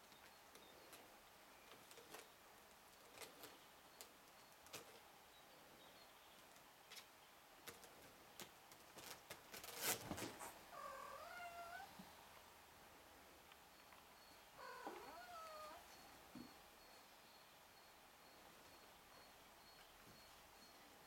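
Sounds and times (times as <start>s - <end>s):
rustling scrape: 9.0s - 10.6s
kitten meowing: 10.8s - 11.9s, 14.6s - 15.8s.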